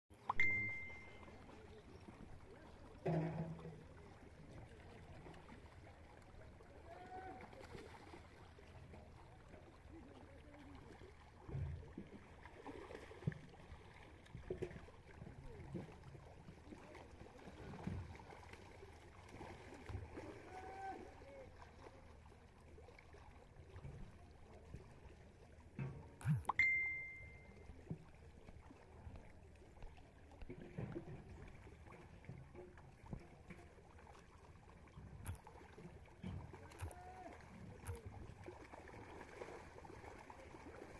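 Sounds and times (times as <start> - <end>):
fish splashing in water: 4.9 - 8.7, 9.8 - 16.0, 16.6 - 23.5, 33.8 - 40.9.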